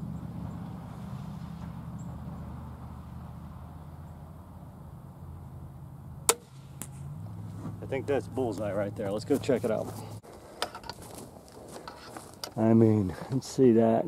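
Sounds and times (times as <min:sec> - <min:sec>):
low engine drone: 0:00.0 - 0:10.2
crossbow firing snap: 0:06.3 - 0:07.1.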